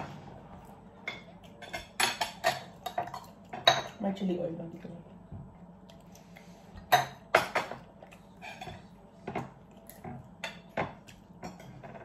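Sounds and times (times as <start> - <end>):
utensils clinking on plates: 1.0 - 4.0.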